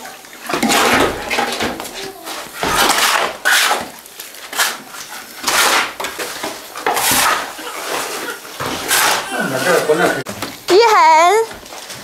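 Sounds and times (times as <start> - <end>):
shovel scraping cement mix: 0.6 - 10.1.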